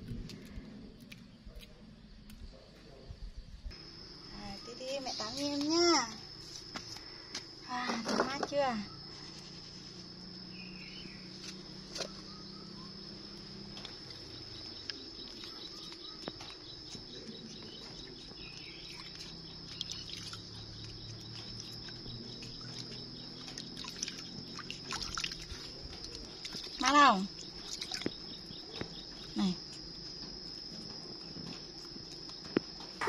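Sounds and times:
rapid pulsing insect call: 0.0 - 33.0
high-pitched insect drone: 3.8 - 33.0
water dripping in metal basin: 18.9 - 28.9.

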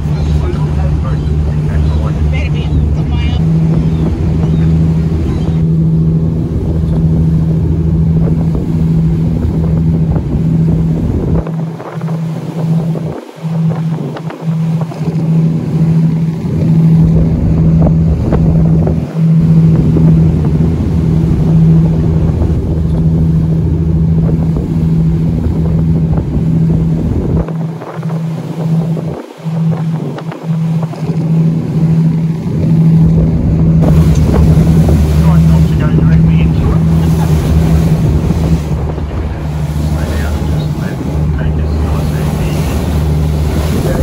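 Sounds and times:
boat engine droning: 0.0 - 44.0
wind rumbling on microphone: 0.0 - 44.0.

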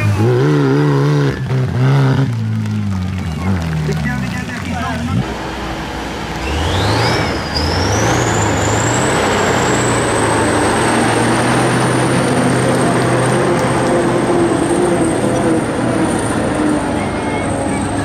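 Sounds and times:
tractor diesel engine revving: 0.0 - 18.0
turbocharger whine: 3.1 - 18.0.

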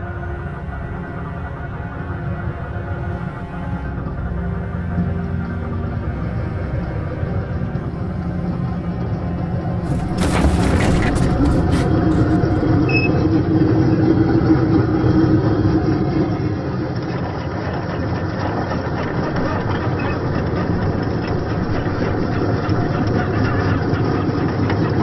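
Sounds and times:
toy tank running over gravel: 9.8 - 12.7.

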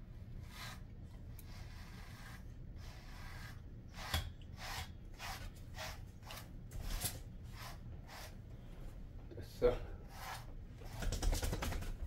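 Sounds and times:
brush scratching through dog fur: 0.4 - 8.4, 10.0 - 11.3.

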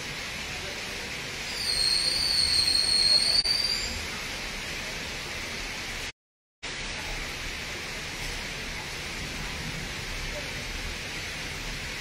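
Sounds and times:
rain falling: 0.0 - 12.0
high whistling tone: 1.5 - 4.0.

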